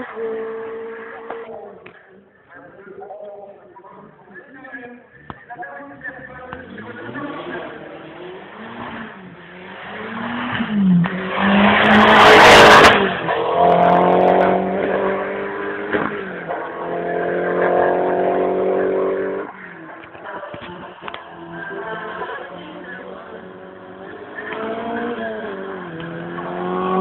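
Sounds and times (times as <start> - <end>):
race car engine accelerating: 6.0 - 27.0.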